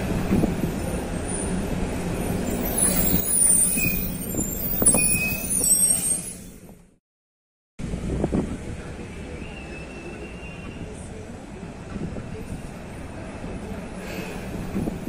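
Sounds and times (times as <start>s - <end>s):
bus diesel engine running: 0.0s - 6.2s, 7.8s - 15.0s
high brake squeals: 2.2s - 6.9s, 9.3s - 11.0s, 14.0s - 14.6s.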